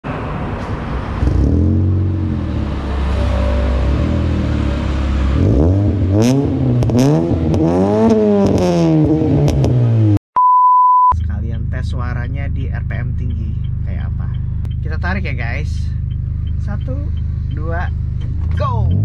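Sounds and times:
car engine revving: 0.1 - 10.2, 11.2 - 19.0.

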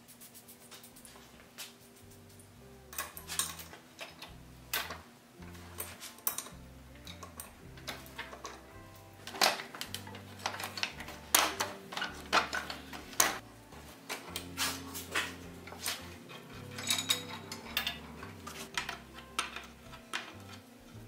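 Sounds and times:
wrench clinking on metal: 2.9 - 5.0, 5.8 - 8.7, 9.3 - 13.4, 15.2 - 20.6.

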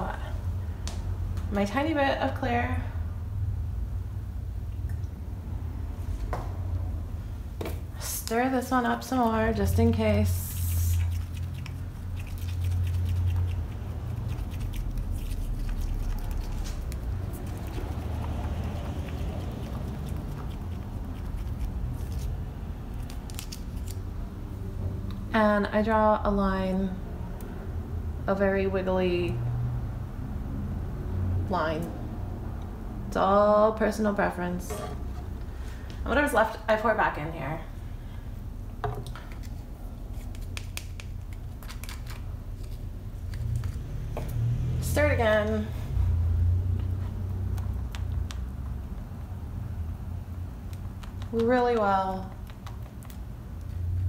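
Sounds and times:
steady low hum: 0.0 - 54.0
stir stick scraping plastic cup: 10.4 - 22.3.

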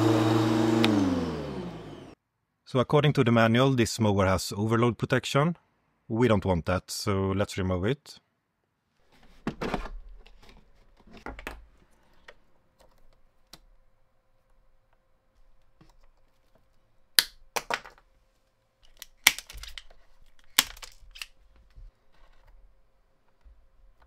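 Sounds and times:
hand tool clicking and snipping wires: 18.8 - 21.4.

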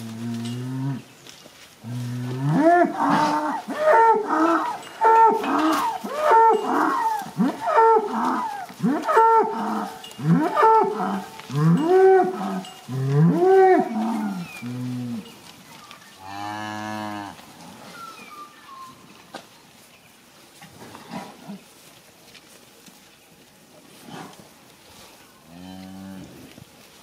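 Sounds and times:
cows mooing: 1.9 - 15.3, 16.2 - 17.4.

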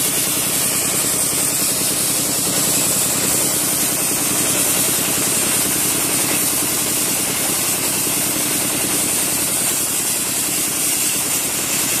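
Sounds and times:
air and water spray hiss: 0.0 - 12.0.

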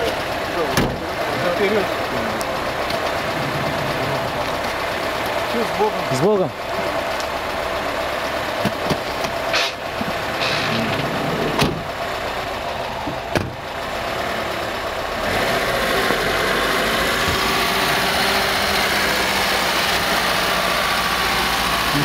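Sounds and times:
outdoor noise: 0.0 - 22.0
vehicle engine running: 0.0 - 22.0
van doors slamming: 0.7 - 1.2, 10.4 - 12.0, 13.0 - 13.7.

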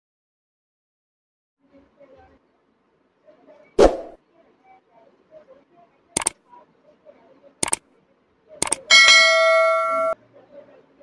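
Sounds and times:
mouse clicks: 6.2 - 6.4, 7.6 - 7.8, 8.6 - 8.9
bright bell ding: 8.9 - 10.2.

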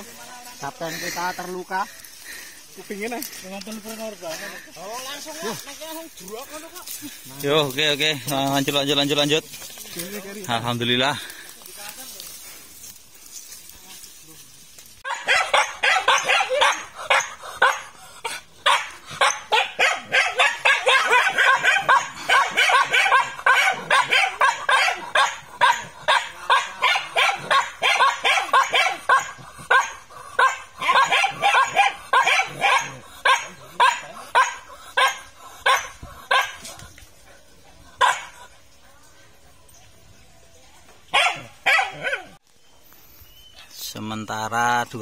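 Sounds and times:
dog barking: 15.0 - 36.7, 38.0 - 38.5, 41.1 - 42.4.

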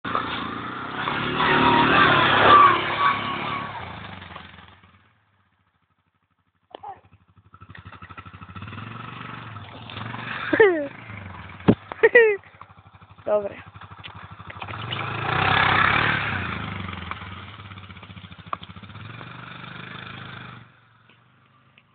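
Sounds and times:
quad engine revving hard: 0.1 - 4.9, 7.6 - 12.3, 13.3 - 20.8
engine idling: 5.5 - 15.5.

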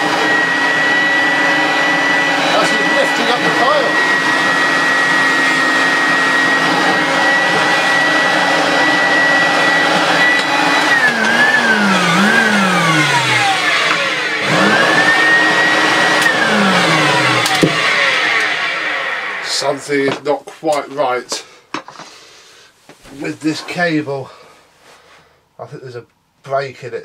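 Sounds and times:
vacuum cleaner motor whining: 0.0 - 20.2.

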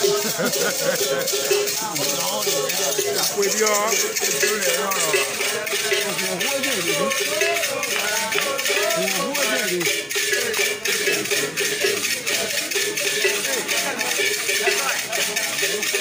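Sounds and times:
several voices singing: 0.0 - 16.0
shaken rattles: 0.0 - 16.0.

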